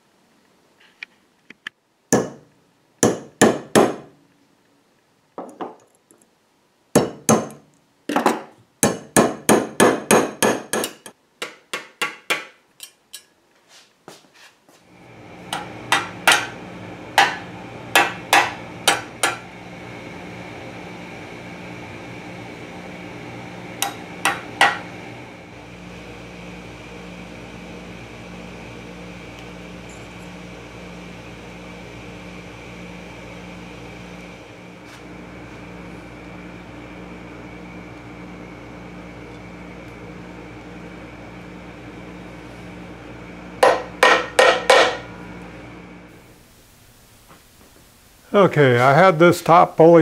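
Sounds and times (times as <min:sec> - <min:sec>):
steady machine hum: 0:14.8 - 0:50.0.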